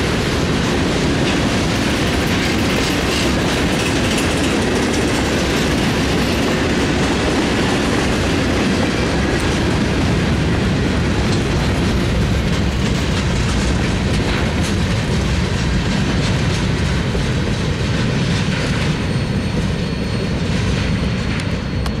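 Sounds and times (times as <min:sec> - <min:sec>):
wheels clicking over rail joints: 0:00.0 - 0:19.2
freight train rumbling past: 0:00.0 - 0:22.0.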